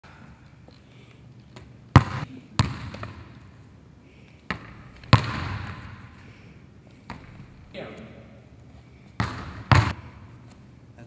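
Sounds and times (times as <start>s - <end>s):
sharp echoing impacts: 4.5s - 8.2s, 9.2s - 10.4s.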